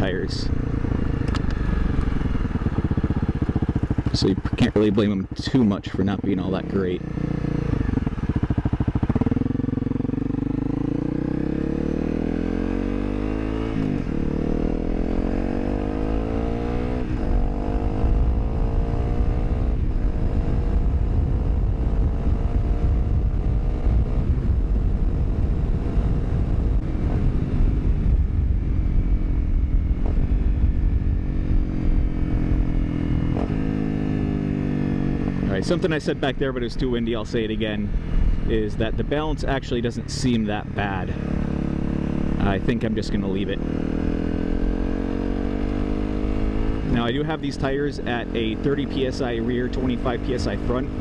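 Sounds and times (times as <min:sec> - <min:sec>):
motorcycle engine accelerating: 0:00.0 - 0:51.0
wind on microphone: 0:19.6 - 0:31.9.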